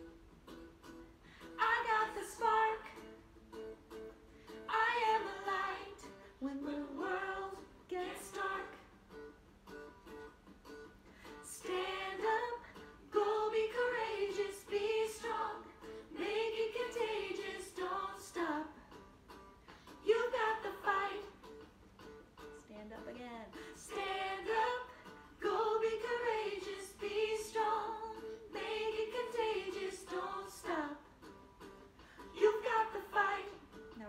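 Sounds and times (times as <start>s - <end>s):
woman singing: 1.6s - 3.1s, 4.7s - 8.9s, 11.4s - 18.8s, 20.0s - 21.4s, 22.9s - 31.1s, 32.3s - 34.0s.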